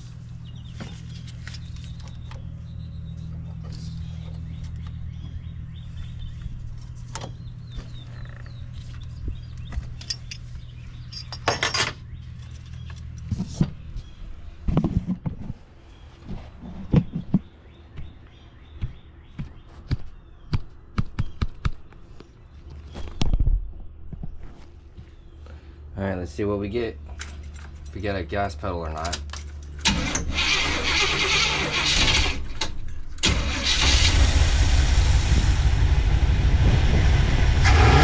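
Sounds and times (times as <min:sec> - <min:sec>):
steady low hum: 0:00.0 - 0:29.9, 0:34.1 - 0:38.0
metal tools clinking: 0:10.0 - 0:13.3, 0:27.1 - 0:28.2.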